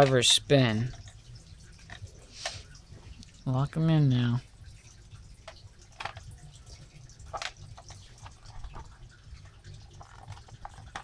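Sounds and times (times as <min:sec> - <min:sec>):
plastic toy clicks and taps: 0:00.0 - 0:00.3, 0:05.4 - 0:06.3, 0:07.3 - 0:08.9, 0:09.9 - 0:11.0.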